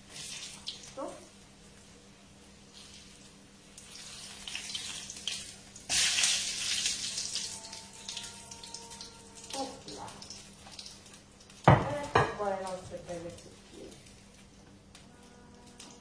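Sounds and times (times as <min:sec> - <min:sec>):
food sizzling in hot oil: 0:00.0 - 0:15.0.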